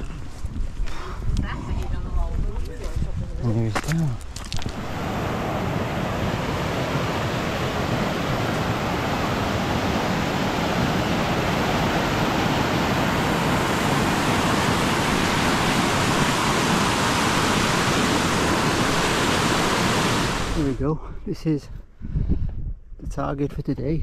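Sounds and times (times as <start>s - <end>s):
stream rushing over rocks: 4.6s - 20.7s.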